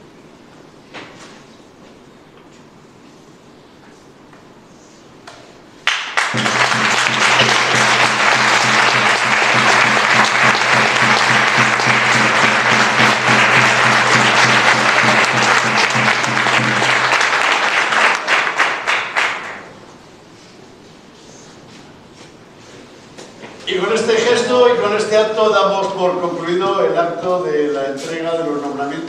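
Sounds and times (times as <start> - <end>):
audience applauding: 5.8 - 19.7.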